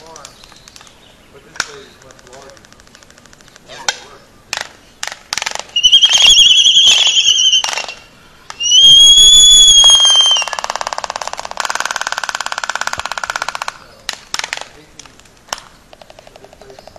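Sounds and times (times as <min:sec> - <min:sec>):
albatross whistled calls: 0:05.7 - 0:10.7.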